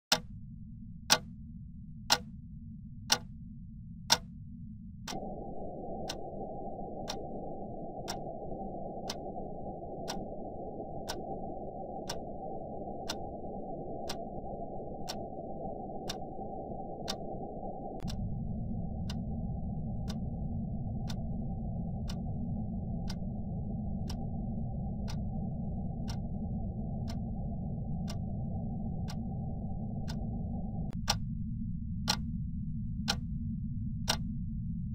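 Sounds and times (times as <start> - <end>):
wall clock ticking: 0.1 - 0.4, 1.0 - 1.4, 2.0 - 2.4, 3.1 - 3.4, 4.1 - 4.4, 5.1 - 5.3, 6.1 - 6.3, 7.0 - 7.3, 8.0 - 8.3, 9.0 - 9.3, 10.1 - 10.3, 12.1 - 12.3, 13.1 - 13.3, 24.0 - 24.2, 34.1 - 34.3.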